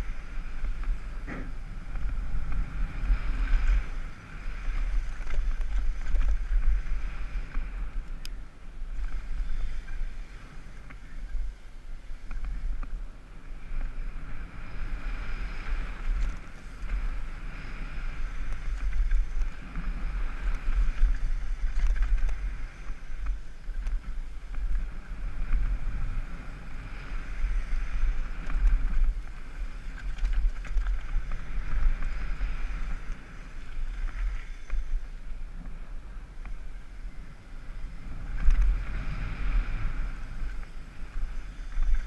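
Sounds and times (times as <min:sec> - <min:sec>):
wind buffeting microphone: 0:00.0 - 0:42.0
bike clicks and rattles: 0:03.4 - 0:08.4, 0:16.0 - 0:17.2, 0:18.3 - 0:25.7, 0:27.5 - 0:35.0, 0:38.3 - 0:38.9.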